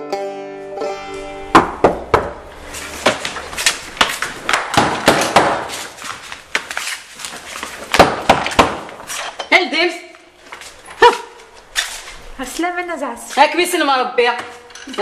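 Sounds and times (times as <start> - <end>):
scuffle knocks slaps and thumps: 1.6 - 9.3
bodies banging against wooden door: 4.0 - 5.8, 7.8 - 9.0.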